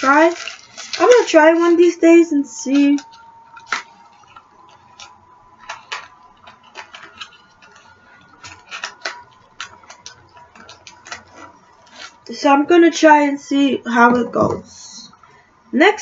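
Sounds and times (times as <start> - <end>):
packaging being handled: 0.0 - 12.3.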